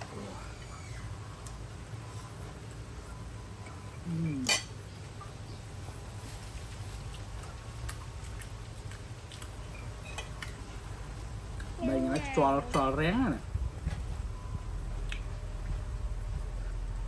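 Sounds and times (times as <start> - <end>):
steady low rumble: 10.6 - 17.0.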